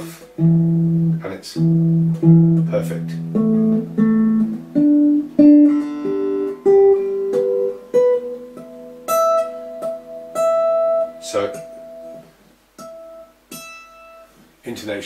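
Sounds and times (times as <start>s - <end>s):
amplified guitar notes plucked: 0.0s - 12.2s.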